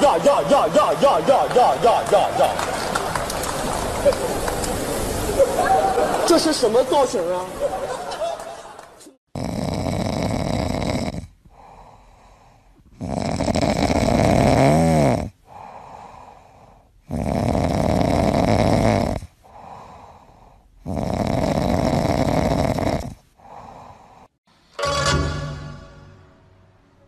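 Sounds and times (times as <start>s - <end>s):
pet snoring loudly: 9.3s - 11.9s, 12.8s - 16.2s, 17.0s - 20.0s, 20.8s - 24.0s
soft breaths: 11.4s - 13.0s, 15.4s - 17.2s, 19.2s - 20.9s, 23.0s - 24.4s.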